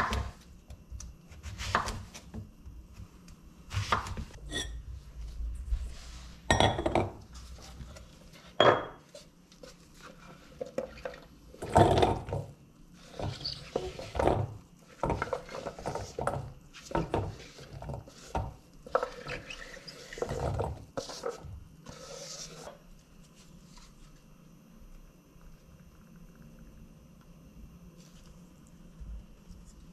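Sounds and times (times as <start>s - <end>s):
knife scraping cutting board: 1.4s - 2.3s, 3.7s - 4.8s, 16.8s - 22.8s.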